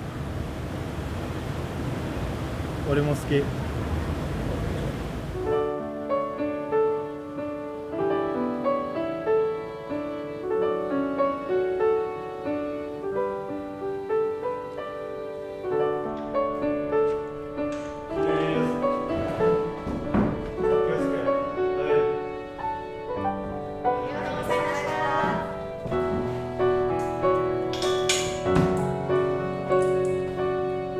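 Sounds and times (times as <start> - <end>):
solo piano music: 5.3 - 30.9
knocking and scuffing: 18.7 - 20.8, 25.2 - 26.5.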